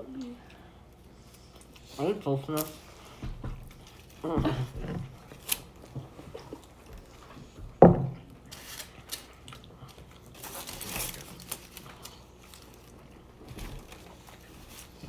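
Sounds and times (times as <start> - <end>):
foil and paper wrappers crinkling: 3.7 - 6.0, 8.5 - 15.0.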